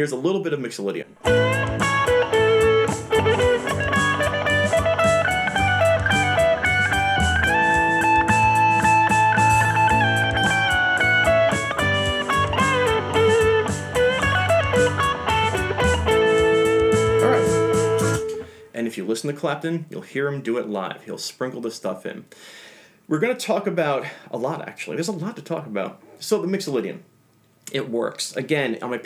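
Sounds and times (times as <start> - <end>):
electric guitar solo: 1.2 - 18.6
drums: 1.2 - 18.7
bass: 1.2 - 19.0.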